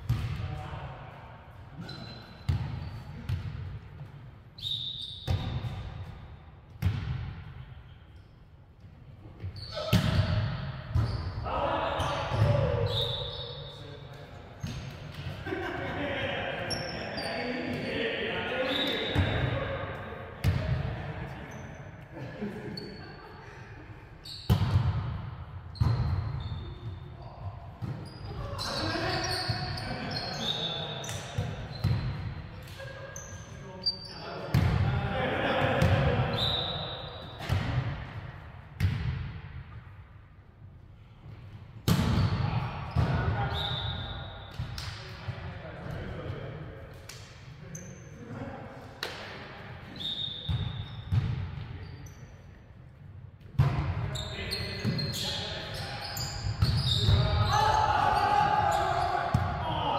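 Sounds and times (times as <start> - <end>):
sneakers squeaking on court: 1.8 - 3.5, 4.6 - 5.9, 9.4 - 11.4, 24.2 - 25.0, 25.7 - 27.1, 27.8 - 32.4, 50.0 - 52.4, 54.1 - 57.6
volleyball hits echoing: 34.5 - 36.3, 37.3 - 38.2, 41.8 - 43.5, 49.0 - 49.4.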